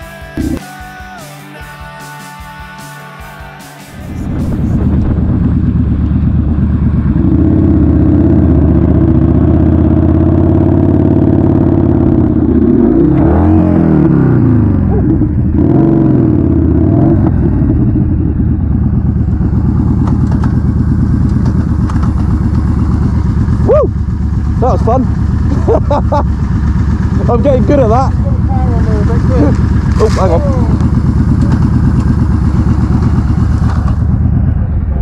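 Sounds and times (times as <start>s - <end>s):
motorcycle engine revving: 0.3s - 0.8s, 3.8s - 35.0s.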